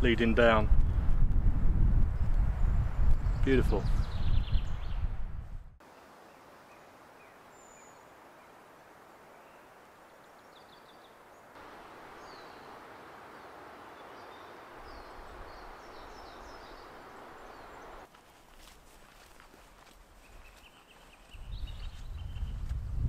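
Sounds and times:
small birds chirping: 2.2s - 5.2s, 9.4s - 18.1s, 20.1s - 23.0s
faint steady hiss: 5.8s - 20.0s.

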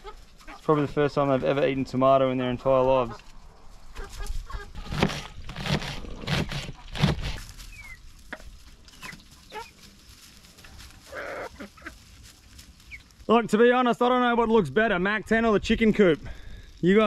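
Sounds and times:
hens clucking: 0.0s - 1.5s, 2.6s - 5.3s, 6.5s - 13.2s.

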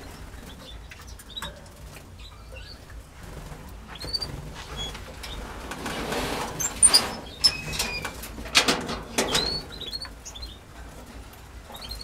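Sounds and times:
canaries chirping: 0.0s - 5.6s, 9.1s - 10.8s, 11.5s - 12.0s.

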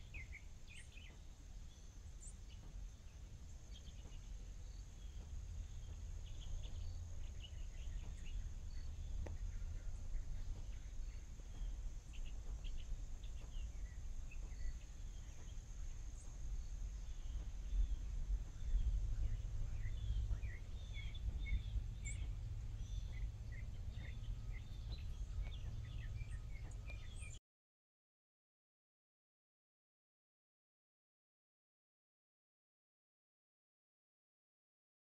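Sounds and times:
birds chirping: 0.0s - 27.4s
low rumble: 0.0s - 27.4s.

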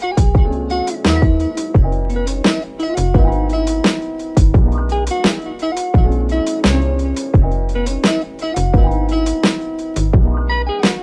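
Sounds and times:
plucked guitar-like notes: 0.0s - 11.0s
deep kick drums: 0.2s - 2.0s, 3.2s - 3.5s, 4.4s - 4.8s, 6.0s - 6.3s, 7.4s - 7.6s, 8.8s - 9.0s, 10.1s - 10.4s.

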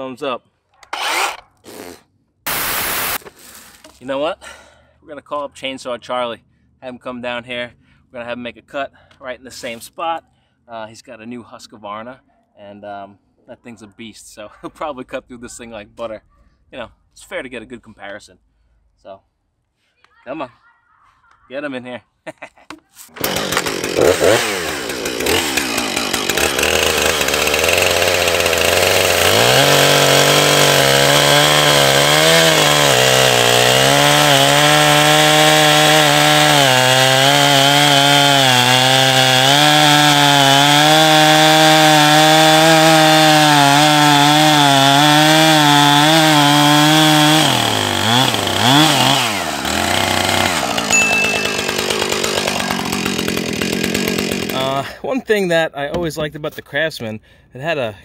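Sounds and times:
chainsaw cutting a log: 0.8s - 4.0s, 23.1s - 54.9s.

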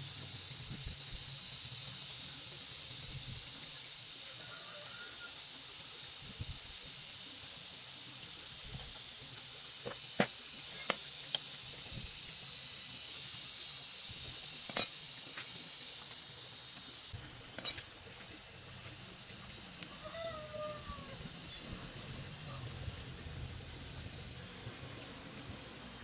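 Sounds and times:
steady high hiss: 0.0s - 26.0s
metal engine parts clinking: 8.2s - 11.6s, 14.6s - 15.6s, 17.6s - 17.9s.

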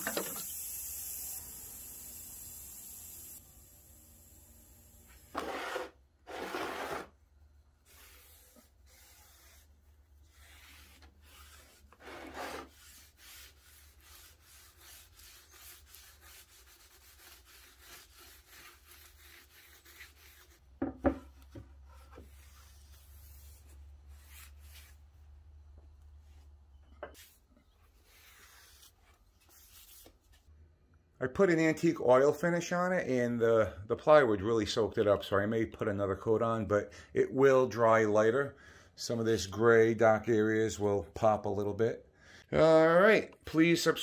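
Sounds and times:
rag rubbing on wood: 5.4s - 7.1s, 10.3s - 21.2s.

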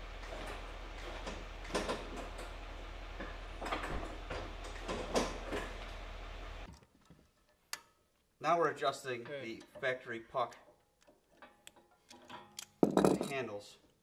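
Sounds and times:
metal clanks and clatters: 0.0s - 6.0s, 9.0s - 13.6s
shop hum: 0.0s - 6.7s.

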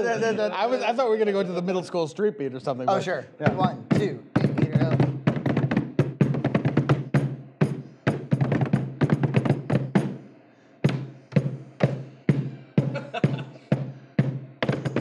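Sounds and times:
hands slapping a tabletop: 10.8s - 12.0s.

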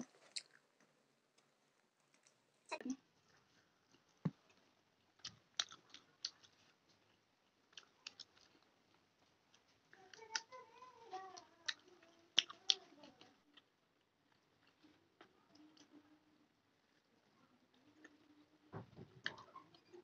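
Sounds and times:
chewing crunchy fried food: 3.2s - 10.6s, 11.2s - 17.1s.

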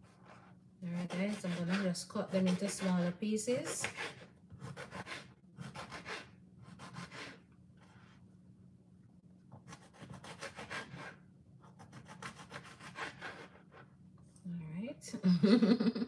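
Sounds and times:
knife cutting on wooden board: 0.0s - 8.1s, 9.5s - 13.6s.

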